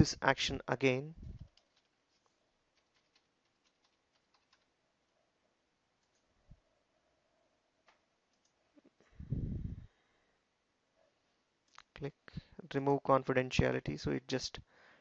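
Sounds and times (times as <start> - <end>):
keyboard keystrokes: 2.8 - 4.7.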